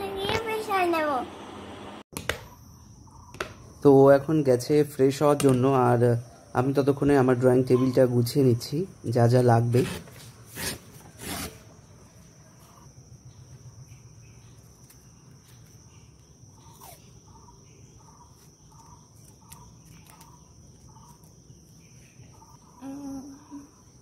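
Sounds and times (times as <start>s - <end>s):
short insect chirps: 2.4s - 3.9s, 6.2s - 24.0s
high insect drone: 6.0s - 24.0s
brief pitched call: 7.7s - 8.2s
paper tearing along a ruler: 9.7s - 11.6s.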